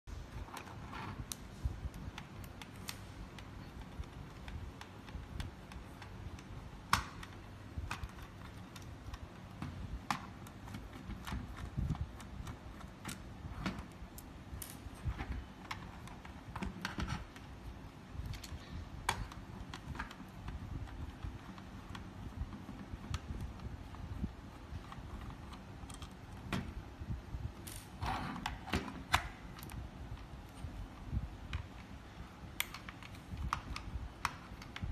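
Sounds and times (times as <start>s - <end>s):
screwdriver clicking on plastic screws: 0.5s - 17.5s, 28.4s - 34.9s.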